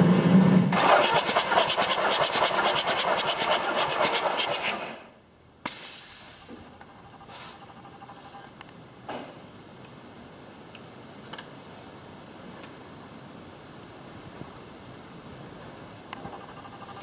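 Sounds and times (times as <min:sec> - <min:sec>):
diesel engine cranking on starter: 0:00.0 - 0:05.0.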